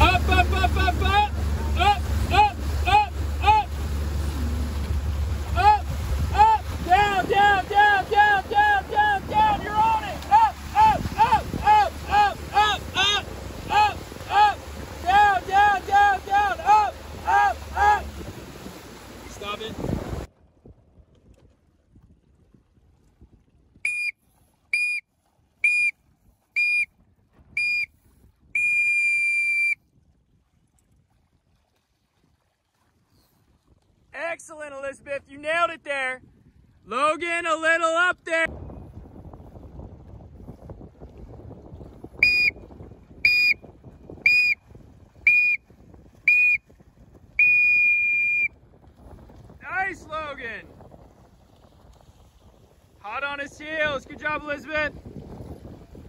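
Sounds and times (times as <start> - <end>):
water and wind noise: 0.0 - 56.0
whistle blasts: 23.9 - 25.0, 25.6 - 26.0, 26.6 - 26.9, 27.6 - 27.9, 28.6 - 29.8, 42.2 - 42.6, 43.2 - 43.6, 44.2 - 44.6, 45.2 - 45.6, 46.2 - 46.7, 47.4 - 48.5
sound signal blasts: 42.2 - 42.5, 47.4 - 48.5.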